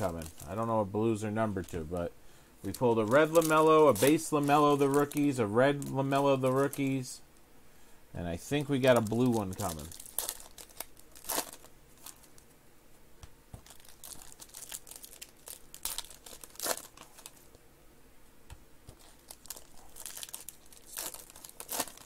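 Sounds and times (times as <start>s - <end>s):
foil wrapper crinkling: 0.0s - 2.0s, 2.6s - 7.1s, 8.6s - 12.5s, 13.6s - 17.5s, 18.9s - 22.0s.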